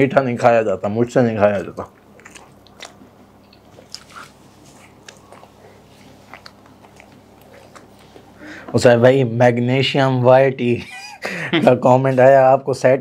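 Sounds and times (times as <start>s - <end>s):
biting and chewing: 1.5s - 8.3s.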